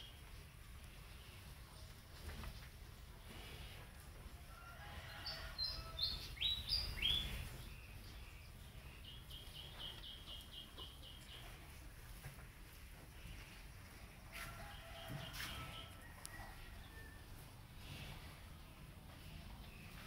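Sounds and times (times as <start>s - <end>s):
birds chirping: 5.0s - 11.9s.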